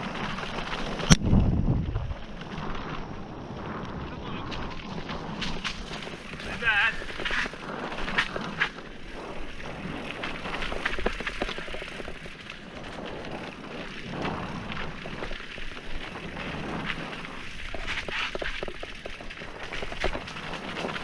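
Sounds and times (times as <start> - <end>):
bike knocking and rattling: 0.0 - 21.0
bike tyres crunching over stones: 0.0 - 21.0.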